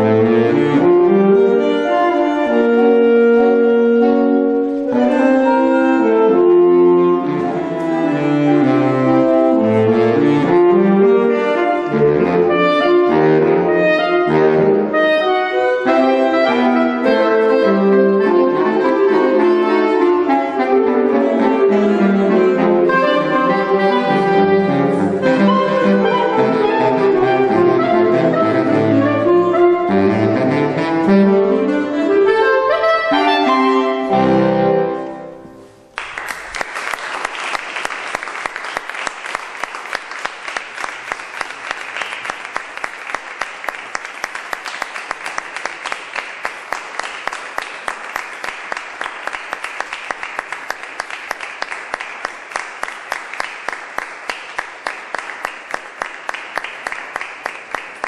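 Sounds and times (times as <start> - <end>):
saxophone quartet playing: 0.0 - 35.8
audience applause: 35.9 - 58.0.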